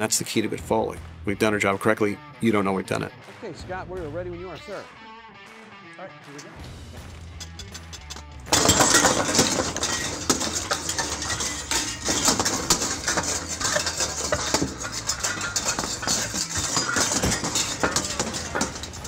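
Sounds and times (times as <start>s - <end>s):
metal wire clattering and jangling: 7.3s - 19.0s.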